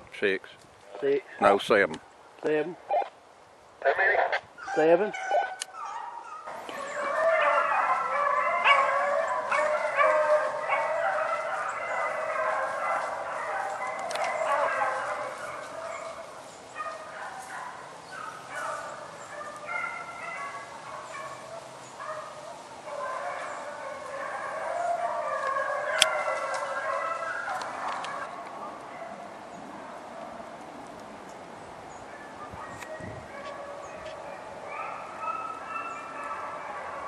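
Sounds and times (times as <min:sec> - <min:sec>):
dogs baying and yelping: 0:04.5 - 0:37.0.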